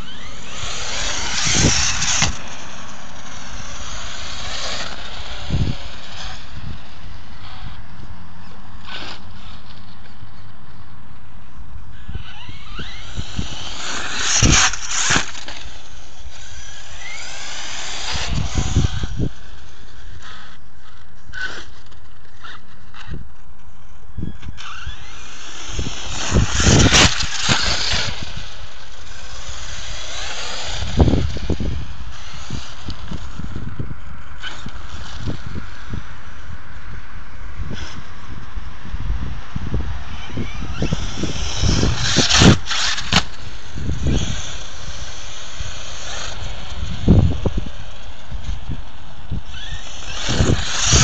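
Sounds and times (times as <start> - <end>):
wind buffeting microphone: 0.0 - 9.6, 11.6 - 22.0, 22.6 - 51.0
electric motor whining: 0.0 - 36.8, 39.6 - 51.0.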